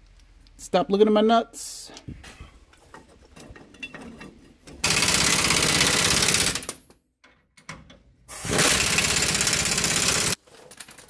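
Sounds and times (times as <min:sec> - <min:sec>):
impact wrench rattling: 0:02.9 - 0:06.9, 0:08.4 - 0:11.0.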